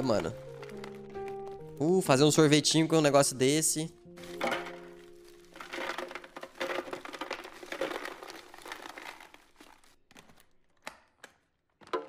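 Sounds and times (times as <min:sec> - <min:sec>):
crinkling handling noise: 0:00.0 - 0:02.7, 0:04.0 - 0:12.0
faint background music: 0:00.0 - 0:06.9.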